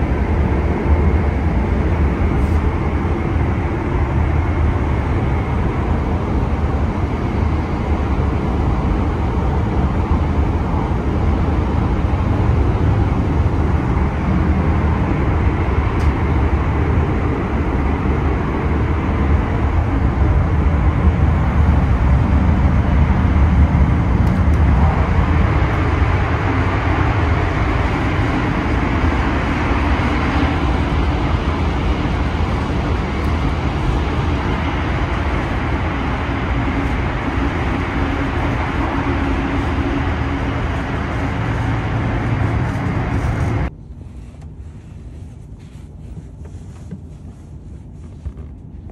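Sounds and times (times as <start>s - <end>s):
train interior rumble: 0.0s - 48.9s.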